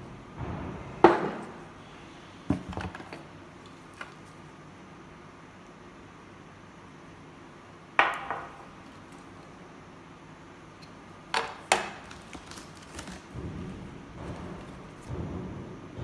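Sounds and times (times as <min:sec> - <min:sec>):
rustling handling noise: 0:10.9 - 0:13.6.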